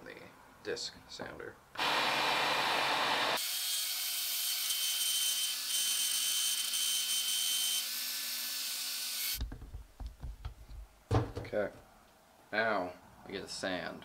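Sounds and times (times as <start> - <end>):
disc sander grinding wood: 1.8 - 3.4.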